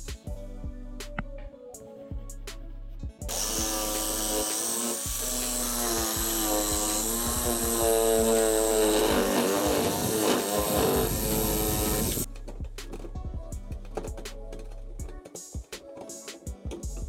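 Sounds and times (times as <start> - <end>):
electric jigsaw sawing wood: 3.3 - 12.3.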